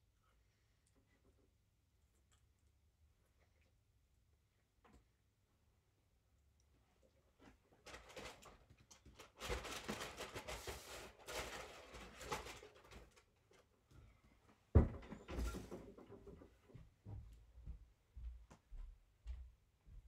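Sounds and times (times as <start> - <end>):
rustling handling noises: 7.3 - 14.7.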